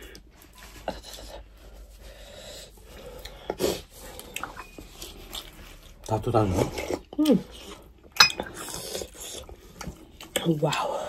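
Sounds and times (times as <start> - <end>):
chewing: 2.7 - 11.0.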